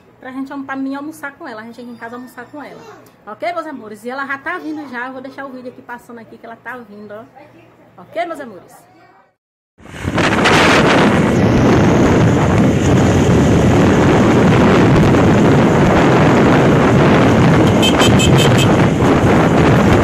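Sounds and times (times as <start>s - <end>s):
road noise: 9.8s - 20.0s
wind buffeting microphone: 9.8s - 20.0s
motorcycle engine: 10.2s - 20.0s.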